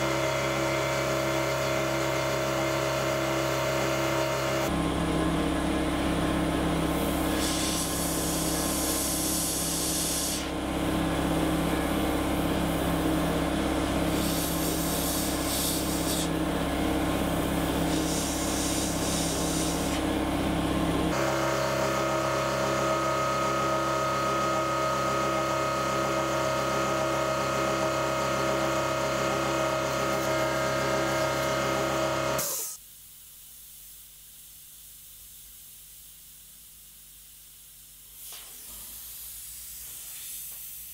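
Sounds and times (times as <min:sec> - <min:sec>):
air compressor motor running: 0:00.0 - 0:32.8
airbrush spray hiss: 0:07.0 - 0:10.5, 0:14.1 - 0:16.3, 0:17.8 - 0:20.0, 0:38.1 - 0:40.9
faint hiss: 0:32.7 - 0:40.9.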